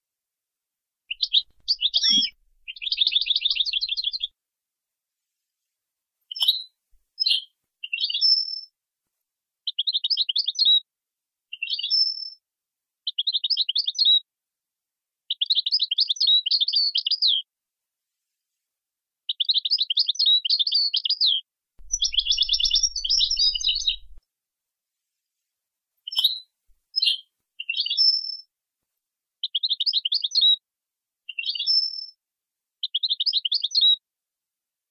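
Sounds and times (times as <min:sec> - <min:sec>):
goldfinch twittering trills: 0:01.1 - 0:04.3, 0:21.8 - 0:24.2.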